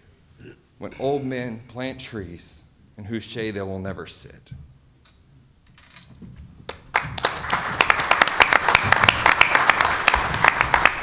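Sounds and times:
audience applause: 6.8 - 11.0.

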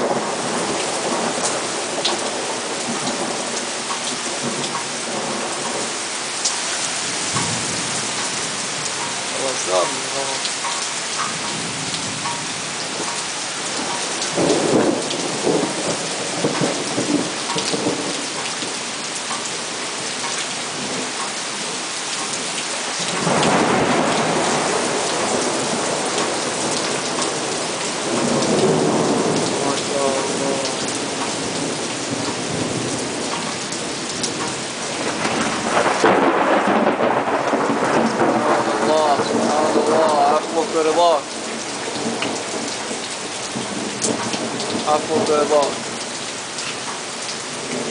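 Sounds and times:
heavy rain pouring: 0.0 - 47.9
thunder rolling: 13.8 - 18.4, 23.1 - 45.9.

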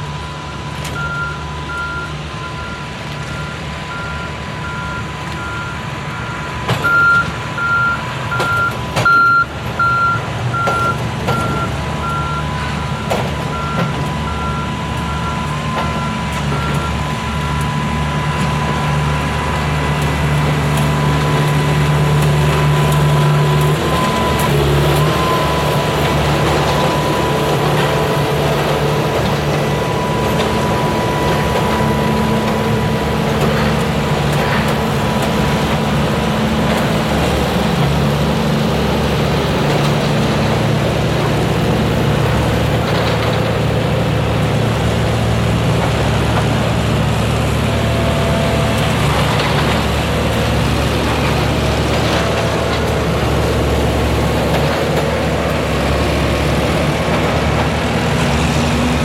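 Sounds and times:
diesel locomotive engine running: 0.0 - 59.0
electronic beep: 1.0 - 12.5.

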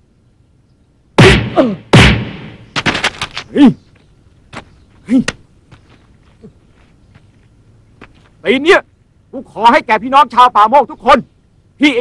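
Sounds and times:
person shouting: 1.2 - 1.9
heavy punch impacts: 1.2 - 3.1
sharp smacks: 1.2 - 3.5.

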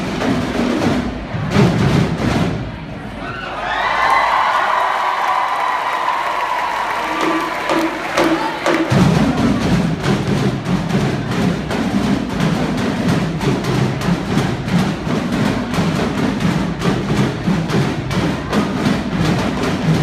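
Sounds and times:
marching drum line cadence: 0.0 - 3.2, 3.8 - 20.0
crowd cheering: 3.0 - 9.4.

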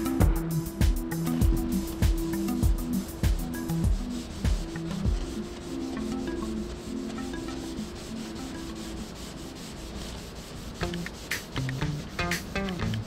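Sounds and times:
background music: 0.0 - 13.0
sanding car bodywork: 0.0 - 13.0.

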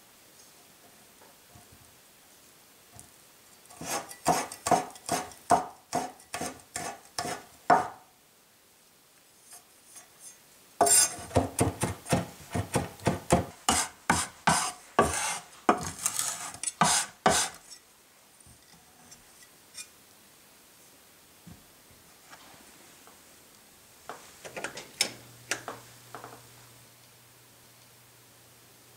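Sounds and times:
cleaver chopping on wooden board: 3.8 - 8.0, 10.8 - 15.9, 16.8 - 17.5.

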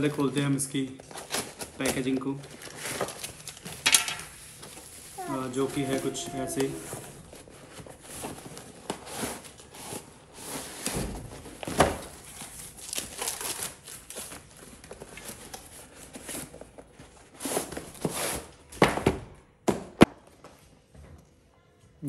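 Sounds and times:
packaging crinkling and tearing: 0.0 - 3.8, 12.2 - 16.6.

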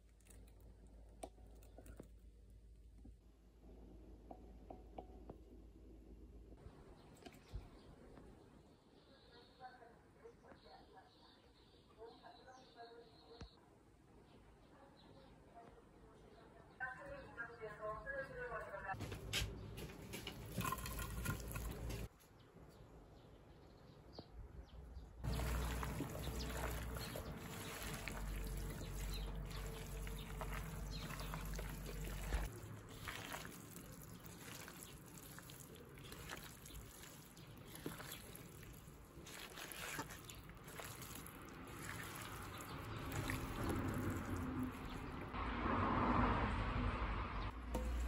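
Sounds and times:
wet squishing of mixed food: 20.3 - 22.1, 25.2 - 45.4.

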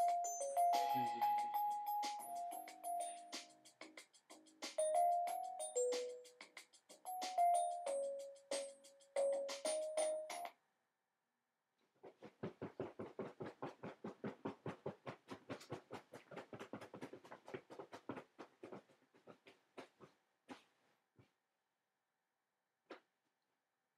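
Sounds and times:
chiming song notes: 0.0 - 3.6, 4.8 - 6.5, 7.1 - 10.5
bed creaking rhythmically: 12.0 - 20.8.

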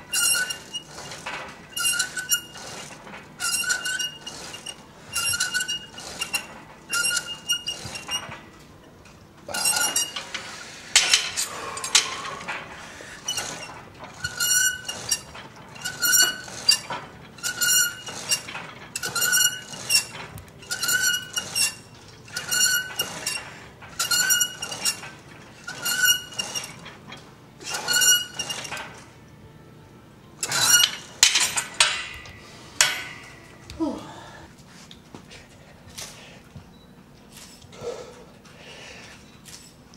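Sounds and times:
weight stack clanking down: 9.5 - 29.1, 30.4 - 33.9
weight stack plates clinking: 30.4 - 33.8.

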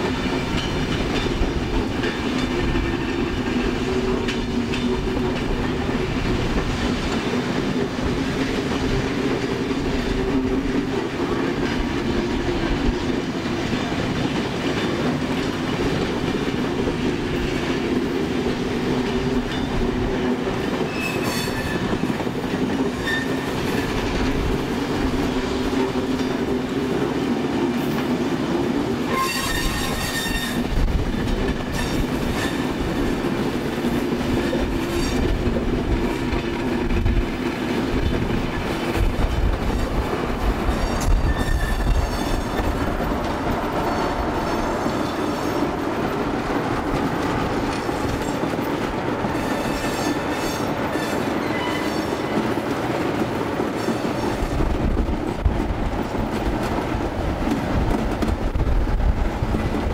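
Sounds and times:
train running on track: 0.0 - 59.9
high-pitched wheel squeals: 20.9 - 21.9, 23.0 - 23.5, 29.1 - 30.7, 40.8 - 42.7, 49.4 - 52.3.

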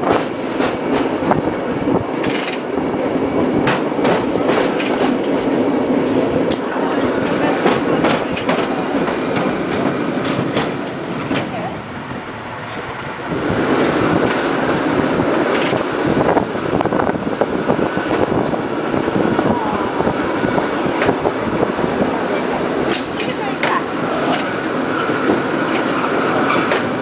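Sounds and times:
cable car wheels rattling on rail: 0.0 - 27.0
sharp clacks: 2.2 - 2.7.

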